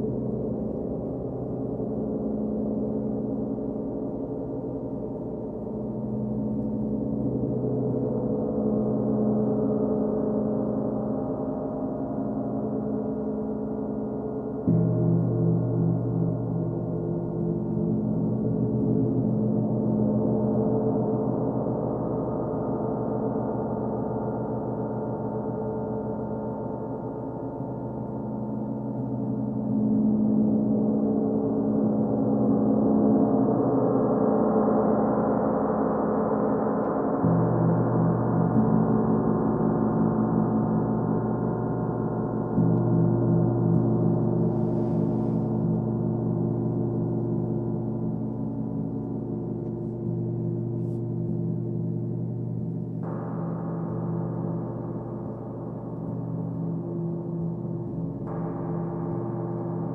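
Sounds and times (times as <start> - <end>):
deeper gong tone: 14.2 - 21.9.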